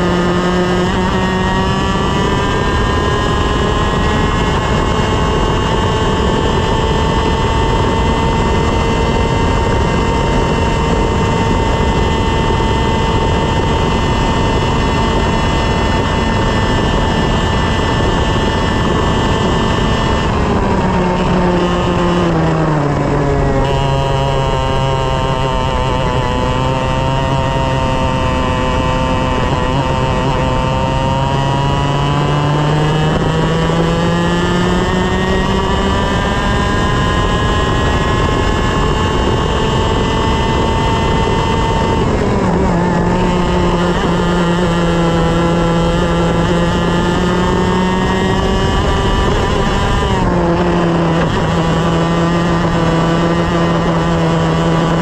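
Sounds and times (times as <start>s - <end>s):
kart engine revving: 0.0s - 55.0s.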